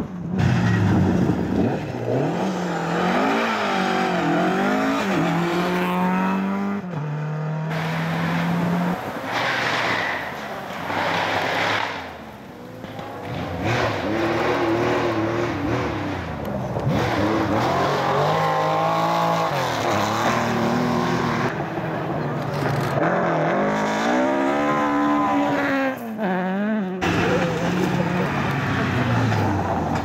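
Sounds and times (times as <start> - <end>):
car accelerating: 0.0 - 30.0
rally car engine revving: 0.0 - 30.0.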